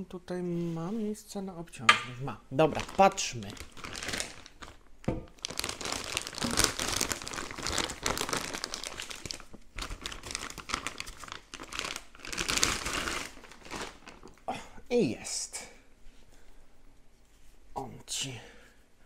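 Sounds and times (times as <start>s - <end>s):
plastic bag crinkling: 2.5s - 14.5s.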